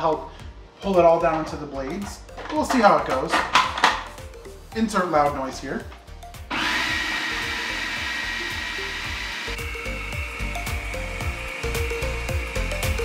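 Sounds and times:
food processor motor whining: 6.4s - 13.0s.

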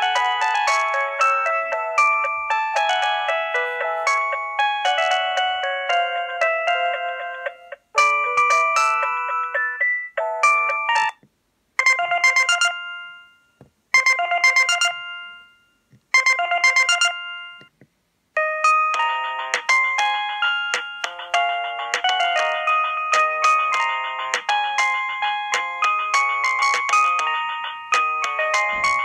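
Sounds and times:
phone ringtone melodies: 0.0s - 11.2s, 11.8s - 17.7s, 18.4s - 29.0s.

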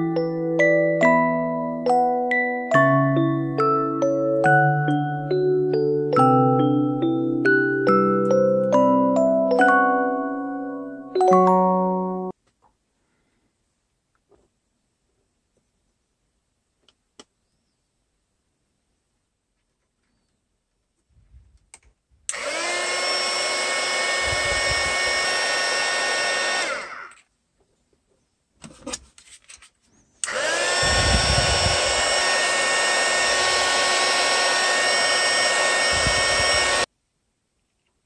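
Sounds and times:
heat gun fan whining: 22.3s - 27.3s, 30.2s - 36.9s.

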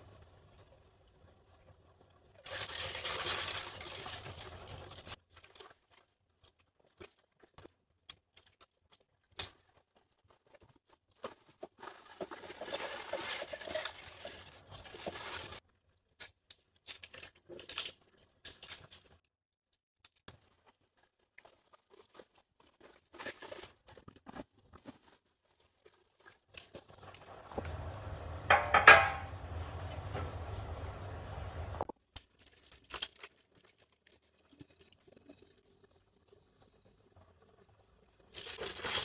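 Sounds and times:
plastic bag rustling and crinkling: 2.4s - 7.6s, 8.4s - 15.6s, 20.4s - 27.5s, 38.3s - 39.0s.

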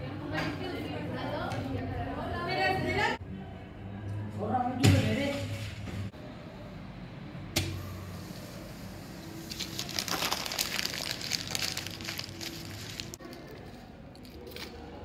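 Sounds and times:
paper crumpling: 9.4s - 14.8s.

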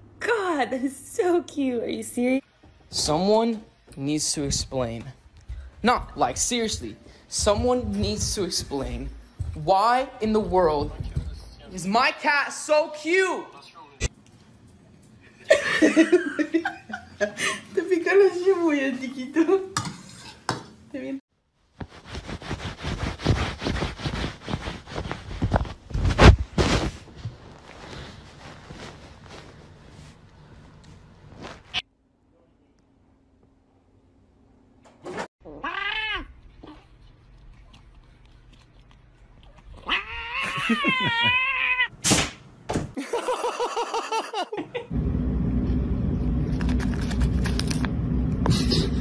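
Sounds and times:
bedding rustling: 21.8s - 31.8s
cat yowling: 35.4s - 36.8s, 39.8s - 41.9s.

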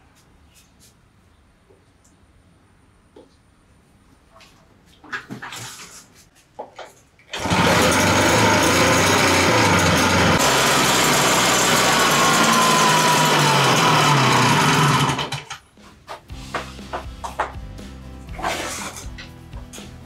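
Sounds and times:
two-stroke sprayer engine running: 7.4s - 15.5s.

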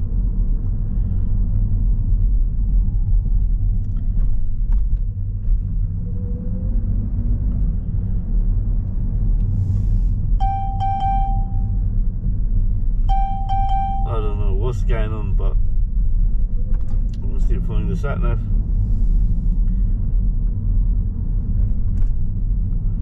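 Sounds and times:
car engine and tyres rumbling: 0.0s - 23.0s
electronic beeping: 10.4s - 11.8s, 13.1s - 14.2s.

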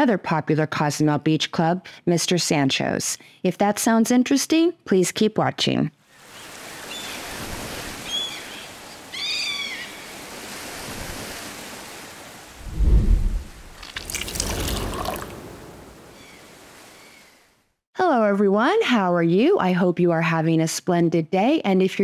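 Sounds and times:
ocean surf washing: 6.1s - 17.4s
rushing splash: 10.4s - 16.9s
low thud: 12.6s - 13.8s.

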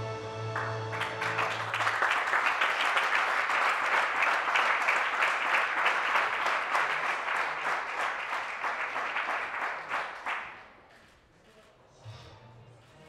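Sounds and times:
audience applauding: 0.5s - 10.9s.

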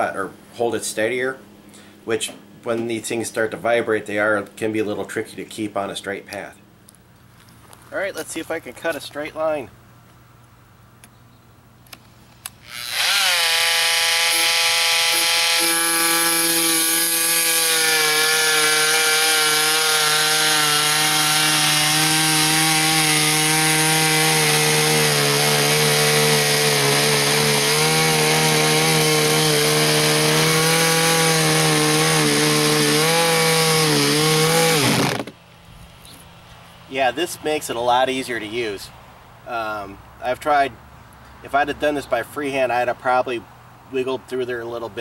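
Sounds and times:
oscillating multi-tool cutting wood: 12.5s - 35.4s.

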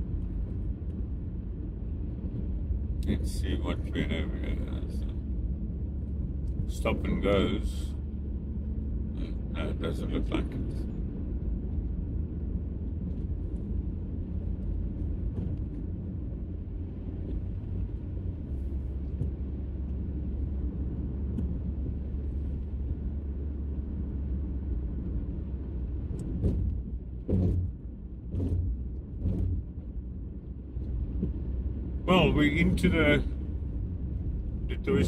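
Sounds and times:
car engine and tyre rumble: 0.0s - 35.0s
short thuds: 26.0s - 30.0s.

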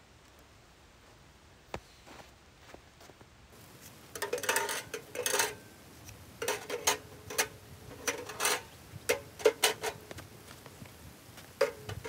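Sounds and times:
metal objects clinking: 4.1s - 5.7s, 6.4s - 10.0s.

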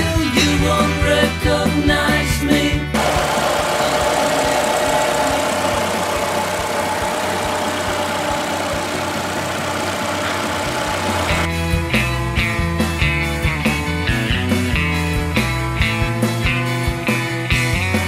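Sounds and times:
car engine idling: 3.0s - 11.5s
rock music: 10.6s - 18.0s.

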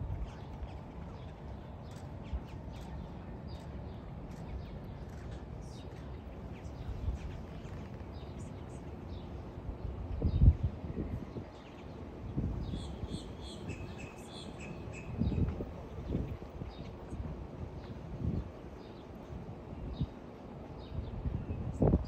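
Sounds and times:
steady low rumble: 0.0s - 22.0s
birds chirping and calling: 12.6s - 15.5s.

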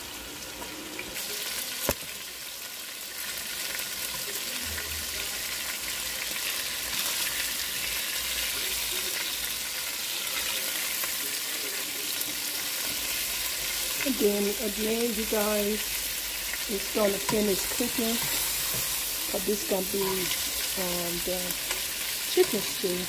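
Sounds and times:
chicken frying in oil: 0.0s - 23.0s
metal tongs turning food: 12.6s - 23.0s.

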